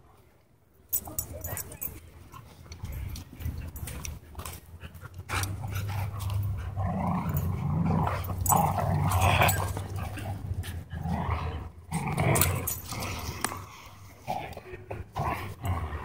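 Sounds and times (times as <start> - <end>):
dog growling: 5.3 - 16.0.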